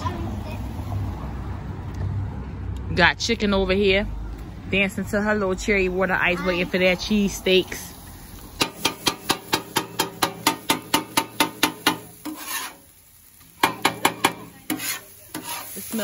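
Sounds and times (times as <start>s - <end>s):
metal spatula clanking on griddle: 8.6s - 12.9s, 13.5s - 16.0s.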